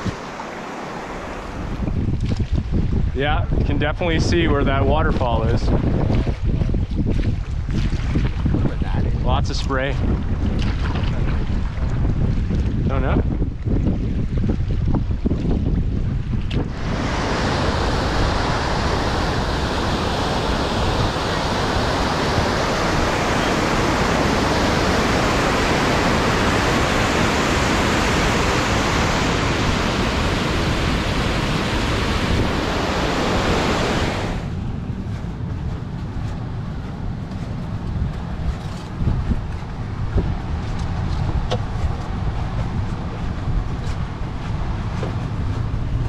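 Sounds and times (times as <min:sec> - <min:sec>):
wind rumbling on microphone: 0:00.0 - 0:46.0
whitewater rushing over weir: 0:16.7 - 0:34.6.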